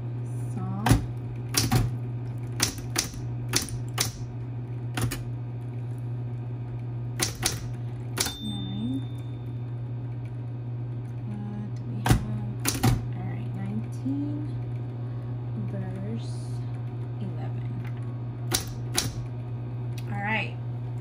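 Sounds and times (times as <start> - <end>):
low motor hum: 0.0 - 21.0
typewriter key strikes: 0.8 - 1.9, 2.6 - 4.2, 7.2 - 8.5, 12.1 - 13.0, 18.5 - 19.2.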